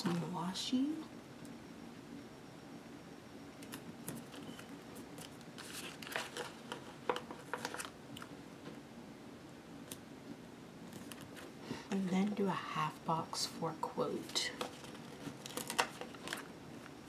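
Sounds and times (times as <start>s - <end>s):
sticker crinkling: 3.7s - 8.3s, 14.2s - 16.9s.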